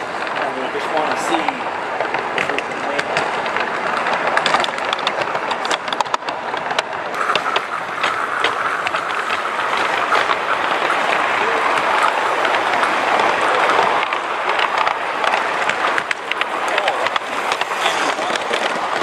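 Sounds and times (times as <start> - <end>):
wheels clicking on track: 0.0 - 19.0
steam hiss: 7.2 - 14.1.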